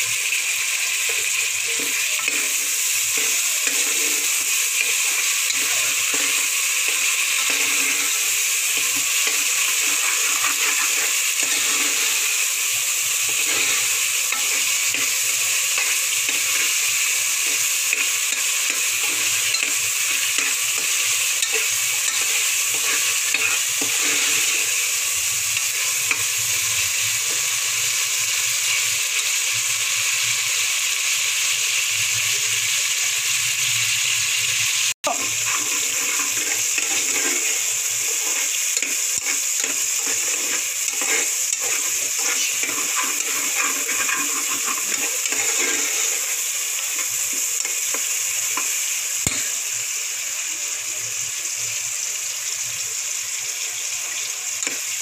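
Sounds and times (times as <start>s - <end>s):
tomatoes sizzling in hot oil: 0.0s - 55.0s
spoon scraping pan bottom: 1.8s - 12.4s, 13.2s - 24.9s, 35.1s - 48.0s.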